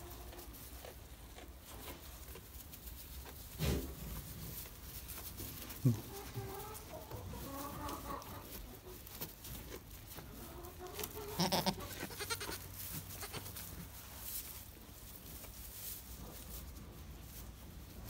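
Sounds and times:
rustling in straw: 0:00.0 - 0:18.0
goat kids bleating: 0:10.8 - 0:13.7.

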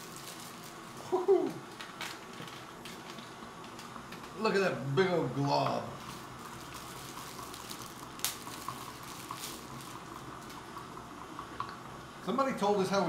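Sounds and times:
liquid swirling: 0:05.9 - 0:11.6.

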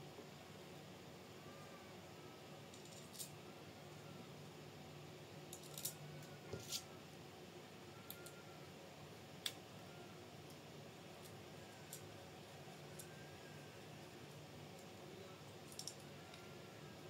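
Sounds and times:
metal parts clicking and clinking: 0:02.7 - 0:03.3, 0:05.5 - 0:06.0, 0:15.6 - 0:16.0.

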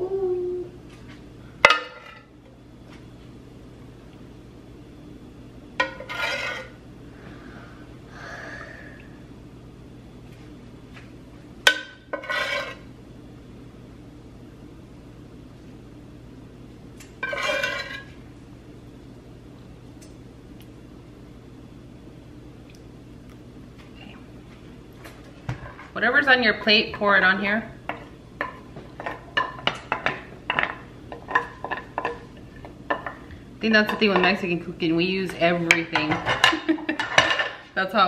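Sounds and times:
ladle scraping pan: 0:05.8 - 0:06.8, 0:12.2 - 0:12.8, 0:17.2 - 0:18.1.

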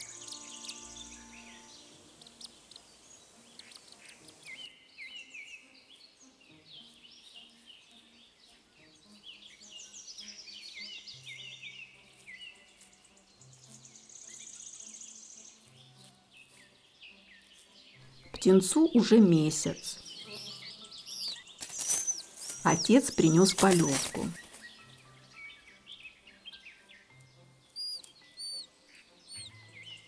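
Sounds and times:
soft background music: 0:00.0 - 0:30.0
songbird chorus chirping: 0:00.0 - 0:30.0
high rapid bird trill: 0:18.8 - 0:24.8, 0:27.7 - 0:30.0.

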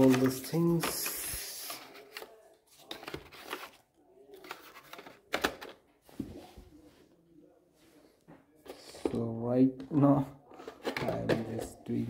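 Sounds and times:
cardboard and paper clicks and rustles: 0:00.0 - 0:05.8.

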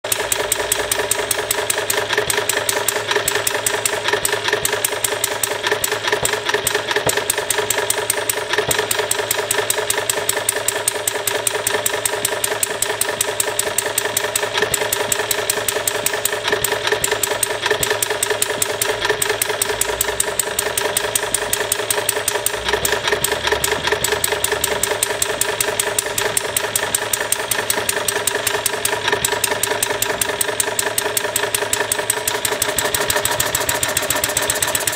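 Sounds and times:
small gas engine running: 0:00.0 - 0:34.9.

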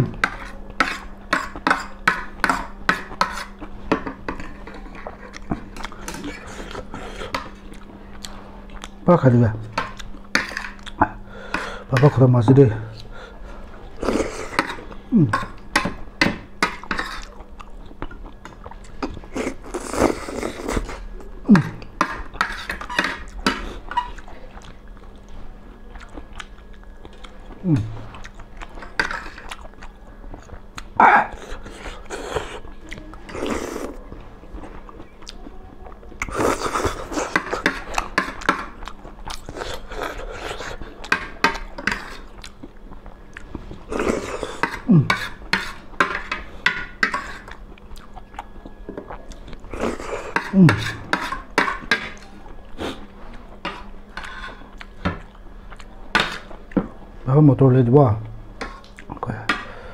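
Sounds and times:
chewing: 0:04.5 - 0:09.0, 0:16.9 - 0:45.8, 0:47.2 - 0:56.8.

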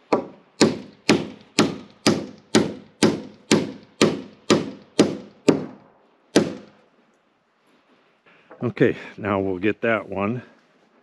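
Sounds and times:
hammer hitting nail into wood: 0:00.1 - 0:06.8.

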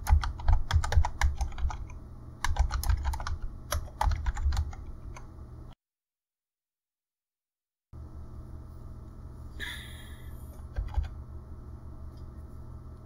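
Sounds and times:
keyboard keystrokes: 0:00.0 - 0:05.3, 0:10.7 - 0:11.2
steady low hum: 0:00.0 - 0:05.8, 0:08.0 - 0:13.0.

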